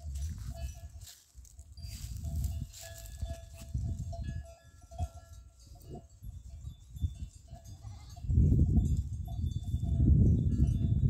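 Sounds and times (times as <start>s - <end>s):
livestock bell clinking: 0.0s - 11.0s.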